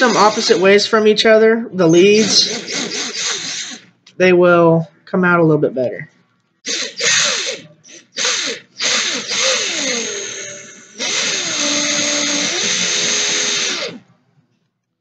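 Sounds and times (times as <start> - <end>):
cordless drill running: 0.0 - 1.1, 2.0 - 3.9, 6.6 - 14.0.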